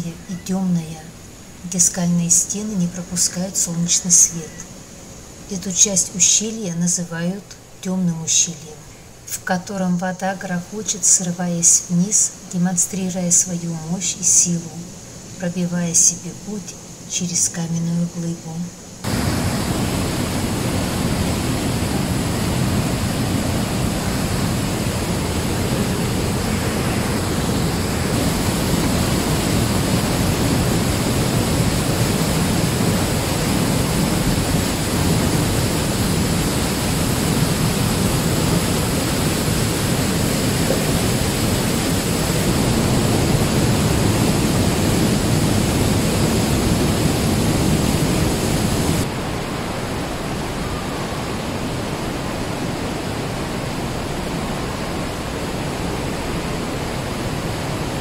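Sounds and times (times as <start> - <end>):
stream rushing over boulders: 19.0 - 58.0.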